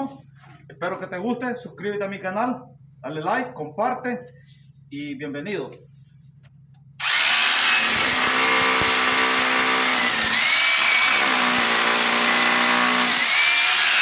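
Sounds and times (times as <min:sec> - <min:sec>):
hammer drill boring into concrete: 0:07.0 - 0:14.0.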